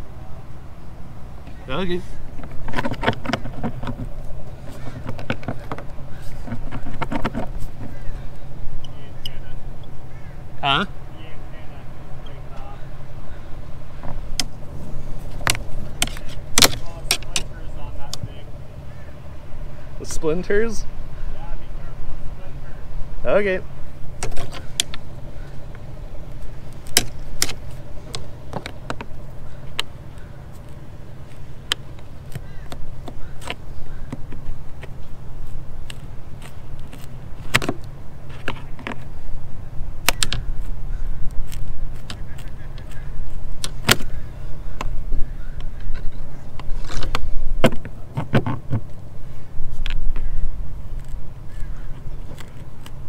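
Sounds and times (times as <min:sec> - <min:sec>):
steady low rumble: 0:00.0 - 0:53.0.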